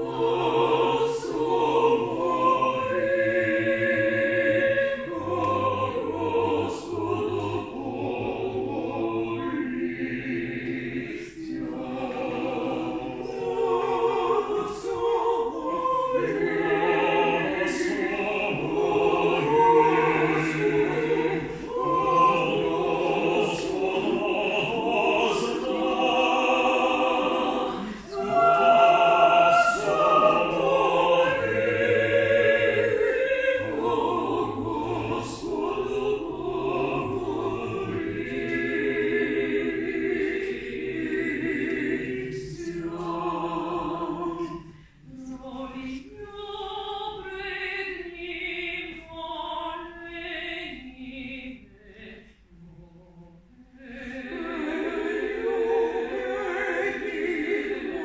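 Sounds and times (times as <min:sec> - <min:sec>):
choir singing a cappella: 0:00.0 - 0:58.0.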